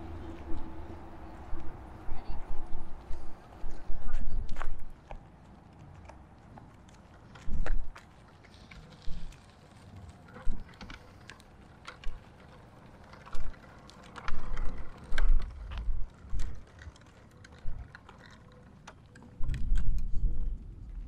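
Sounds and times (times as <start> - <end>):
wind buffeting microphone: 0.0 - 6.4, 12.8 - 18.0, 19.3 - 21.0.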